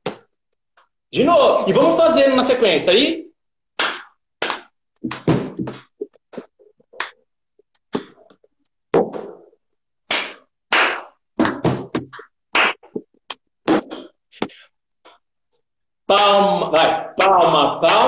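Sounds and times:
hand claps: 10.1 - 13.4, 16.1 - 18.0.

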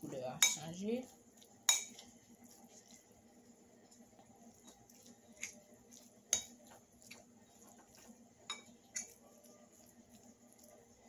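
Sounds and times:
fork scraping on plate: 4.6 - 10.2.

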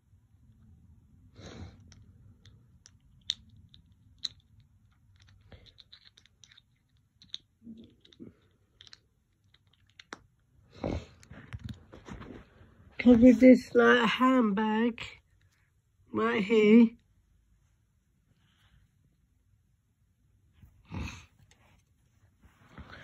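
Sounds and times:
plastic toy pieces clicking: 1.9 - 10.3.

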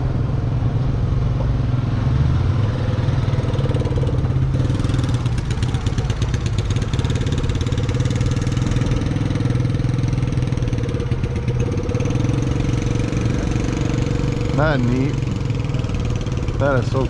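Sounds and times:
small engine running: 3.5 - 17.0.

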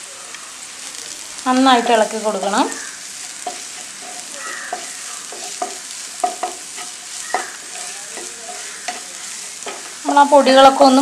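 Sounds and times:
vegetables sizzling in a pan: 0.0 - 11.0
spatula scraping a pan: 2.7 - 11.0.

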